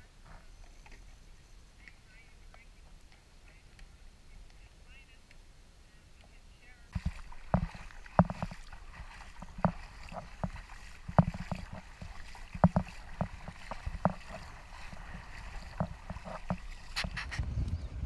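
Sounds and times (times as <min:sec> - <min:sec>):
footsteps wading through water: 0:06.9 - 0:17.5
wind on microphone: 0:07.0 - 0:18.0.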